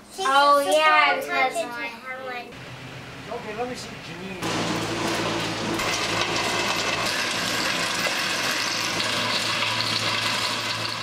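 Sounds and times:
rotary tiller churning soil: 0:04.6 - 0:11.0.

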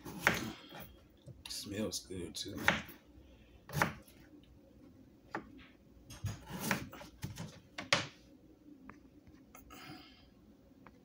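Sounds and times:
knife cutting cucumber on board: 0:00.0 - 0:00.8, 0:02.5 - 0:03.0, 0:03.7 - 0:04.1, 0:06.3 - 0:07.5.

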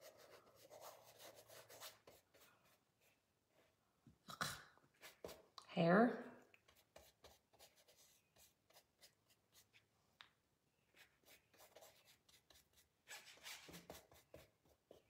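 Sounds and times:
paintbrush scratching on canvas: 0:00.0 - 0:03.2, 0:04.9 - 0:05.6, 0:06.6 - 0:09.9, 0:10.9 - 0:15.0.

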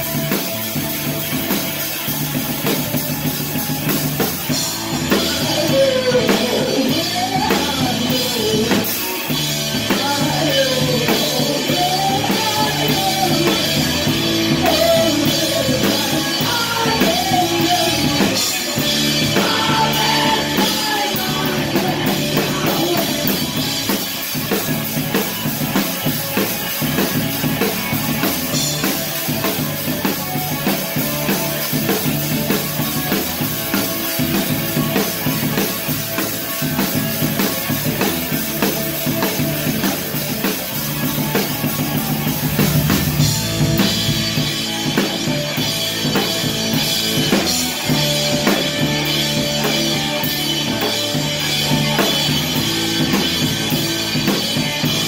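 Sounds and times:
drums hit hard: 0:00.0 - 0:55.0
rock band playing: 0:00.0 - 0:55.0
person singing: 0:04.8 - 0:23.7.

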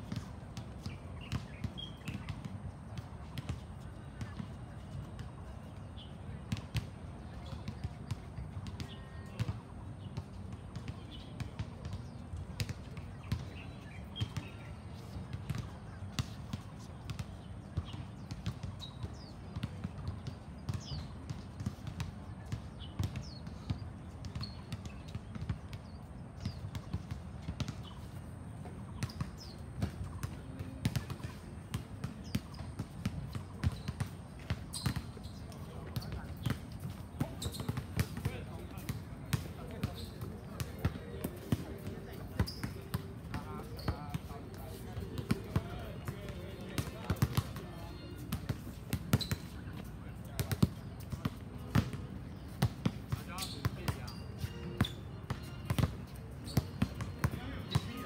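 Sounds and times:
basketballs bouncing on court: 0:00.0 - 0:58.0
birds chirping: 0:31.7 - 0:48.2.

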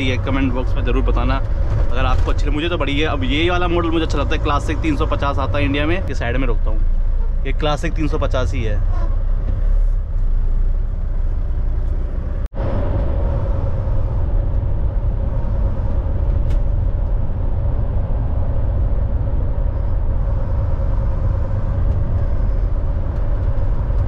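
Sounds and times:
road noise: 0:00.0 - 0:24.0
truck engine rumble: 0:00.0 - 0:24.0.

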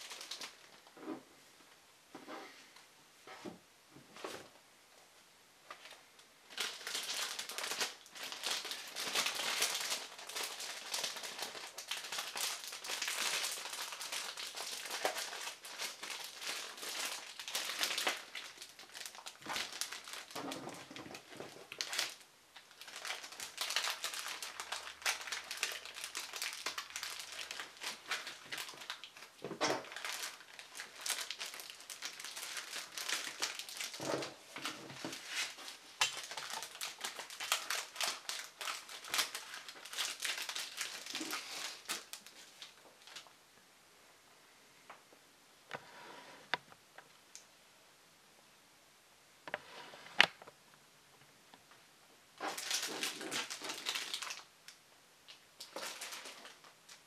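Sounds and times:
paper crinkling: 0:00.0 - 0:00.9, 0:05.7 - 0:43.3, 0:52.4 - 0:54.5, 0:55.6 - 0:57.0.

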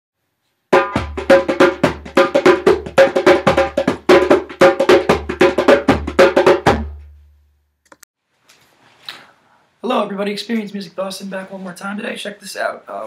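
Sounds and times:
pitched percussion strikes: 0:00.8 - 0:07.2.

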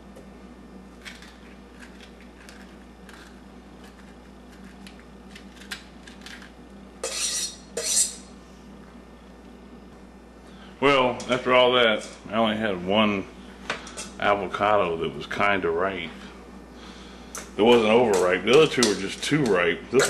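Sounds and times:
knife scraping metal bowl: 0:07.0 - 0:08.3.

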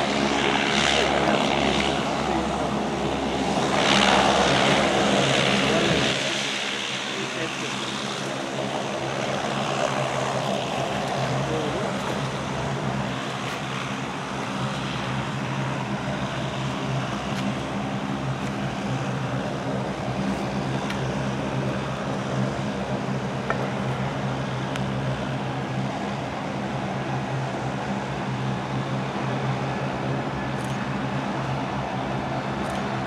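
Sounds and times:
distant jet engines droning: 0:00.0 - 0:33.0.

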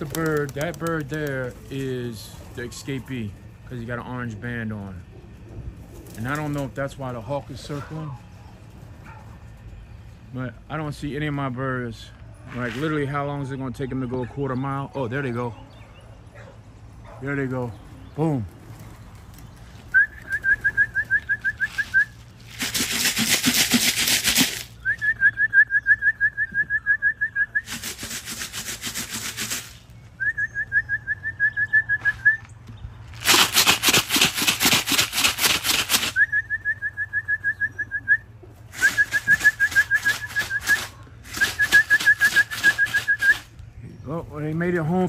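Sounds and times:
grain rattling in a can: 0:22.5 - 0:24.8, 0:33.1 - 0:36.2.

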